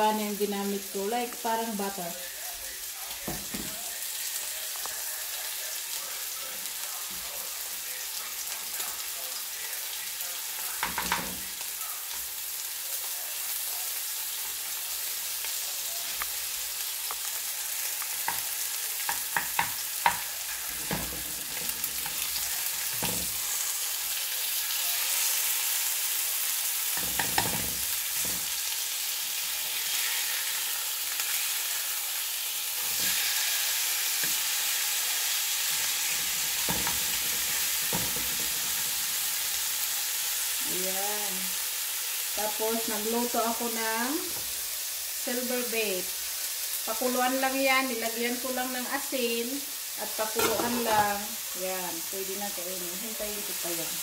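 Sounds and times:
steaks sizzling in frying pan: 0.0s - 54.0s
spatula knocking and scraping pan: 10.8s - 11.5s, 19.0s - 23.5s, 27.0s - 28.6s, 35.8s - 39.0s, 50.4s - 51.2s.

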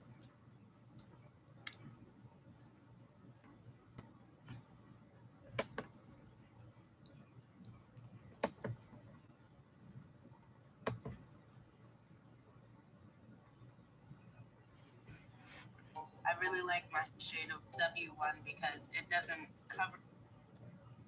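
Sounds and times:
faint room noise: 0.0s - 21.0s
sharp clicks: 5.6s - 5.9s, 8.4s - 8.8s, 10.8s - 11.2s.

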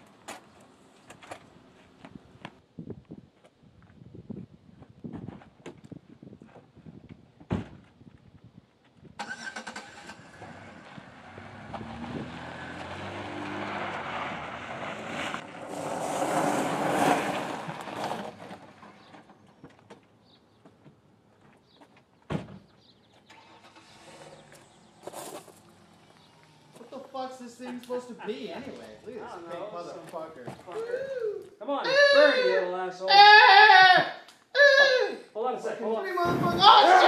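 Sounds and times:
sharp thump: 7.5s - 7.8s, 22.3s - 22.6s
car driving on gravel road: 8.8s - 22.1s, 22.8s - 27.8s
car engine starting: 9.2s - 19.3s, 23.2s - 27.0s.

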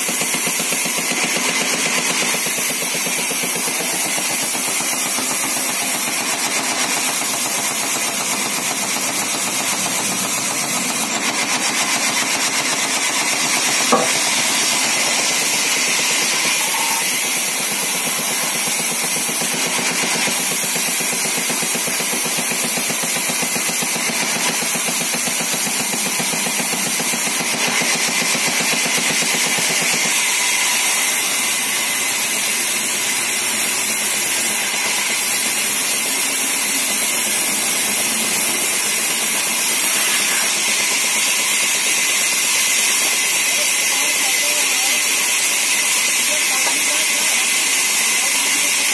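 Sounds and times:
band saw cutting wood: 0.0s - 48.9s
sharp knock: 13.8s - 14.5s.

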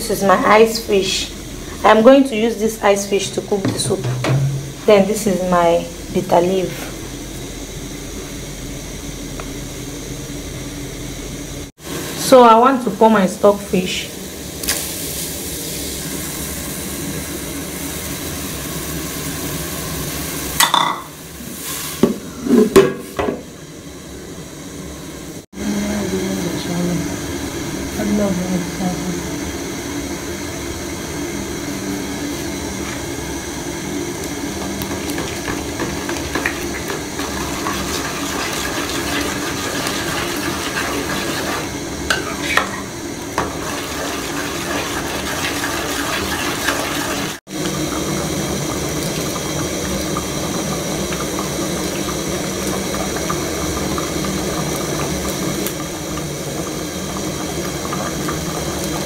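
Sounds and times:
soup bubbling in a pot: 33.4s - 59.0s.

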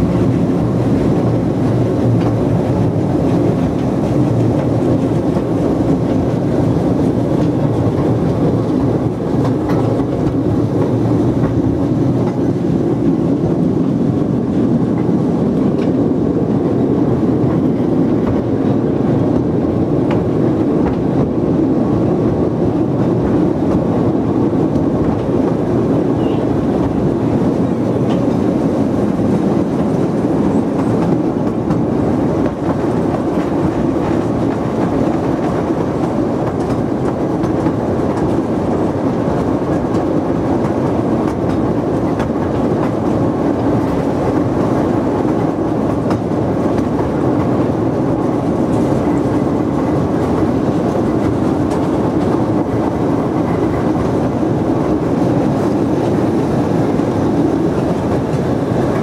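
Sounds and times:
clicks over rail joints: 0.0s - 13.5s, 17.5s - 21.3s, 24.6s - 54.3s
train wheels rumbling on rails: 0.0s - 59.0s.

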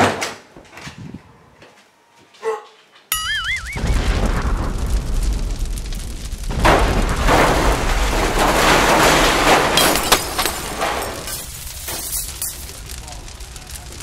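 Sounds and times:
debris crashing down: 3.2s - 14.0s
explosion blast: 3.2s - 14.0s
sharp cracks: 3.2s - 14.0s.

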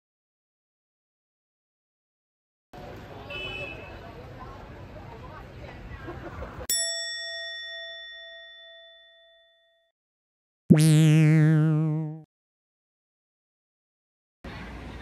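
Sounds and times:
low buzzy wobbling tone: 10.7s - 12.3s.

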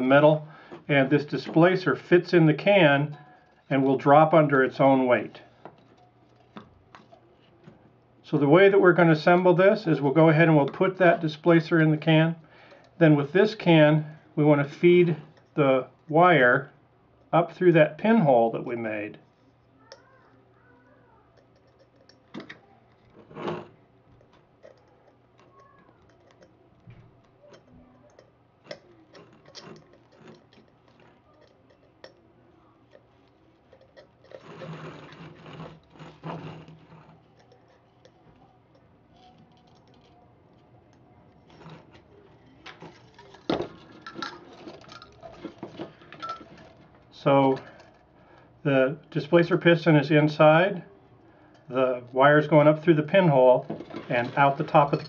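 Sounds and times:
aluminium cans clicking and tapping: 21.3s - 23.3s, 24.1s - 40.1s, 41.5s - 46.9s
rustling scrape: 32.9s - 38.5s.

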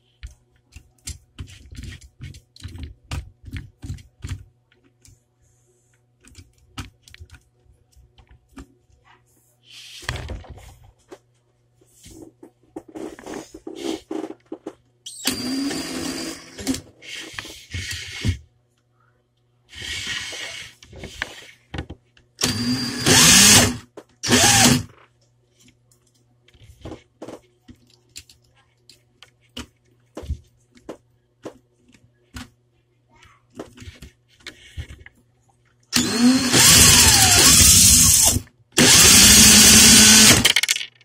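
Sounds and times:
cordless drill motor whining: 15.1s - 16.8s, 22.4s - 24.9s, 36.0s - 40.4s.

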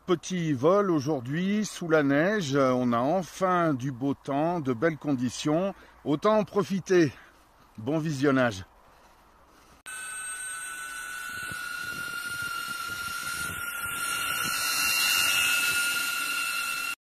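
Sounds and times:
drone rushing hiss and whine: 9.9s - 17.0s.

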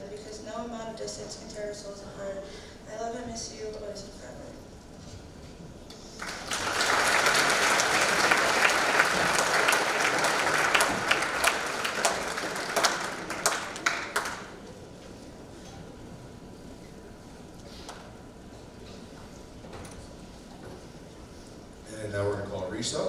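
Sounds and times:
audience applauding: 6.2s - 14.6s.

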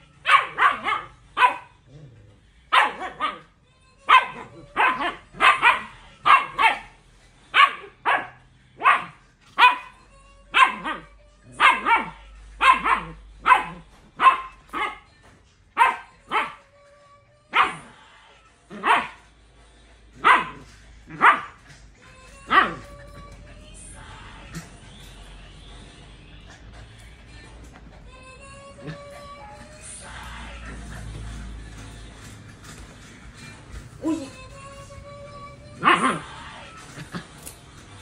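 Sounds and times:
puppy barking: 0.2s - 1.9s, 2.7s - 15.2s, 15.8s - 16.7s, 17.5s - 18.0s, 18.7s - 19.3s, 20.2s - 23.0s, 35.8s - 36.3s.

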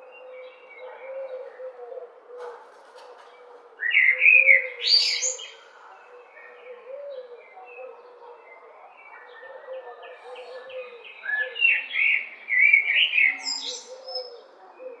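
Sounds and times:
blackbird singing: 3.8s - 15.0s.

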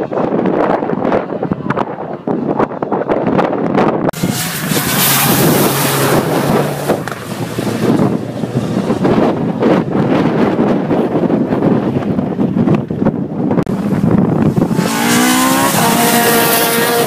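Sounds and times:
wind buffeting microphone: 0.0s - 17.0s
rally car passing at speed: 4.2s - 10.7s, 13.8s - 17.0s.

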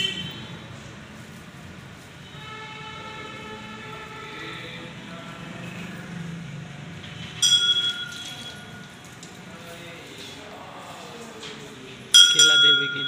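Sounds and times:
temple bell ringing: 7.4s - 9.0s, 12.1s - 13.0s.

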